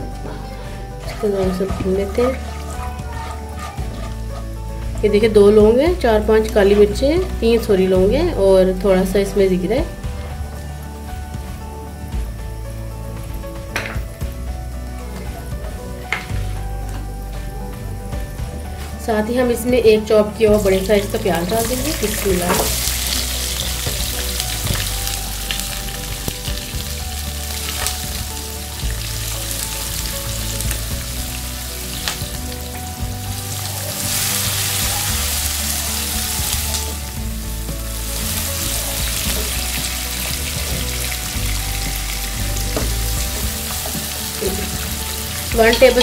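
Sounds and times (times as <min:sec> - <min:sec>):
onion sizzling in hot oil: 0:00.0 - 0:46.0
wooden spatula scraping pan: 0:00.2 - 0:05.5.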